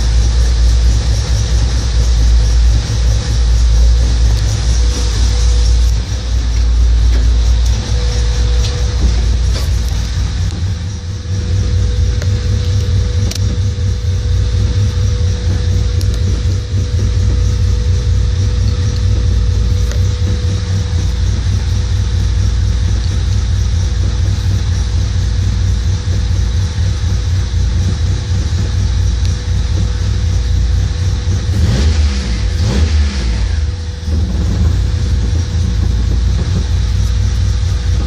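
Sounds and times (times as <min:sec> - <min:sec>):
car engine idling: 0:00.0 - 0:38.0
steady engine whine: 0:00.0 - 0:38.0.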